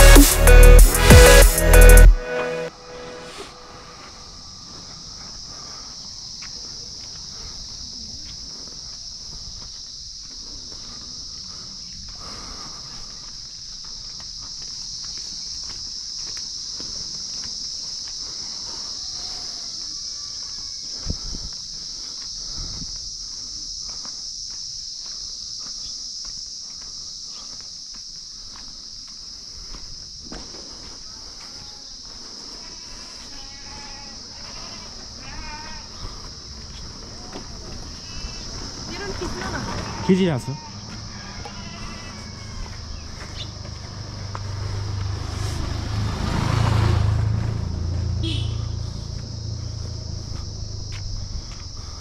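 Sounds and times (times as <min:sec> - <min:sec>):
steady high buzz: 0:00.0 - 0:04.6
insects droning: 0:02.6 - 0:52.0
footsteps on paved road: 0:03.2 - 0:46.6, 0:47.3 - 0:52.0
motorcycle passing by: 0:40.8 - 0:52.0.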